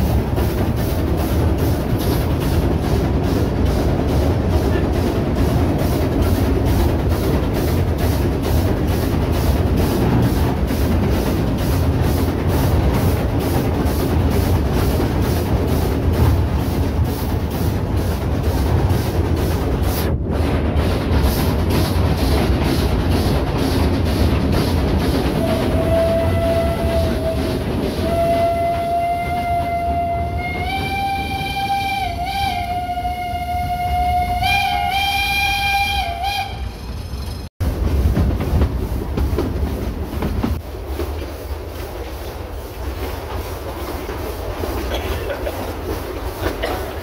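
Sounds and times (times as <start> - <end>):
train rolling rumble: 0.0 - 47.0
steam locomotive whistle: 25.3 - 36.9.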